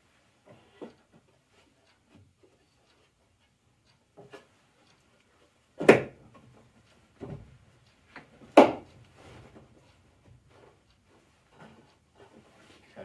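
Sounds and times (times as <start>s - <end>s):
wooden boards knocking against plywood: 5.8s - 6.2s, 8.5s - 8.9s.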